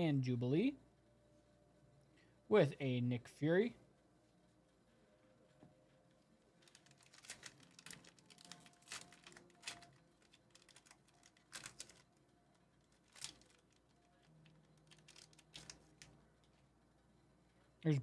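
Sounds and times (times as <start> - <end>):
foil wrapper crinkling and tearing: 6.6 - 12.2, 12.8 - 16.2.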